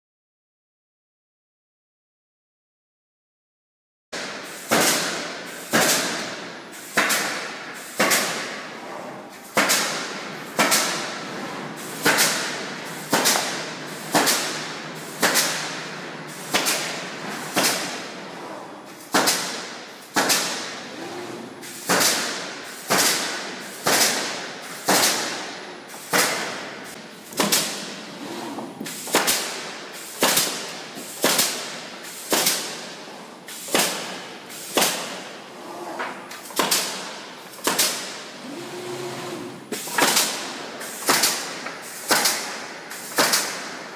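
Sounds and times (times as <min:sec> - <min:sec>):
pneumatic nailer bangs: 0:04.2 - 0:18.2, 0:19.0 - 0:35.4, 0:36.4 - 0:43.9
machine noise: 0:24.8 - 0:31.2, 0:38.3 - 0:40.6.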